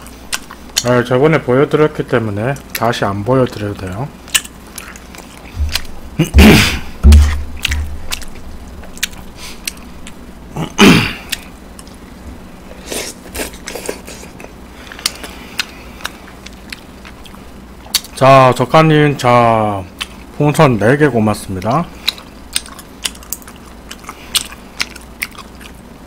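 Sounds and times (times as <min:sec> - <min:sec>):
person chewing food: 0:00.0 - 0:00.9, 0:03.6 - 0:18.2, 0:19.9 - 0:20.4, 0:21.6 - 0:26.0
breathy bursts: 0:05.5 - 0:07.0
low thumps: 0:05.6 - 0:08.7.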